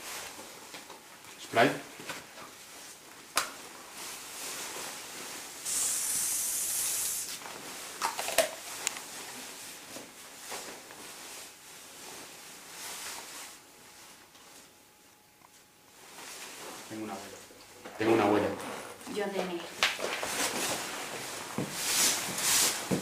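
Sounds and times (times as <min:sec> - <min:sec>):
aerosol spray can hissing: 0:05.6 - 0:07.4.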